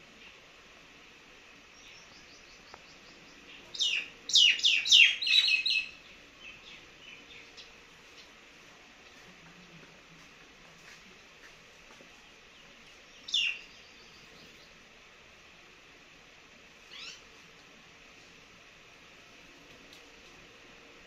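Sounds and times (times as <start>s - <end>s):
bird chirping: 1.7s - 8.3s, 12.2s - 14.8s, 16.9s - 17.3s.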